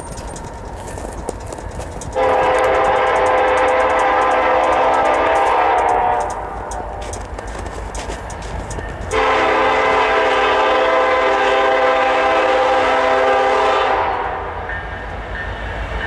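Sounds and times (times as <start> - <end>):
crossing bell ticking: 0.0 - 9.6
locomotive air horn blast: 2.2 - 7.1, 9.1 - 14.6.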